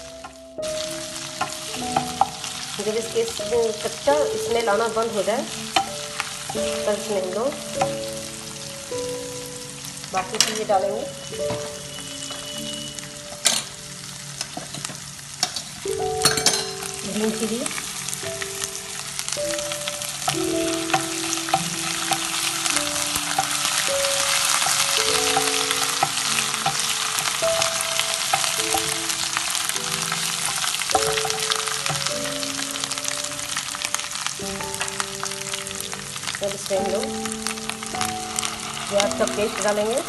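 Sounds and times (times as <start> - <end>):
paste sizzling in hot oil: 0.0 - 40.0
wooden spatula stirring: 19.6 - 33.8.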